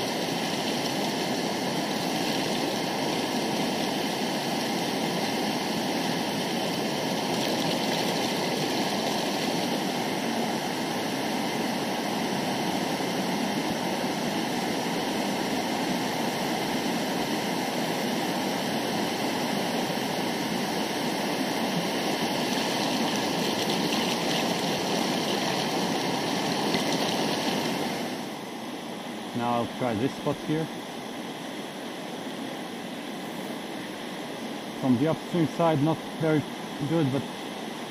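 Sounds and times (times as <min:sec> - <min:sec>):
river rushing over boulders: 0:00.0 - 0:29.8.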